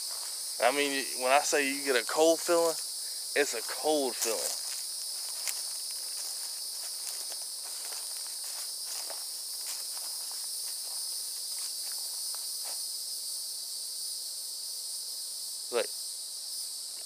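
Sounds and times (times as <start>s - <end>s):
footsteps on grass and leaves: 0.0s - 12.9s
high-pitched insect chorus: 0.0s - 17.0s.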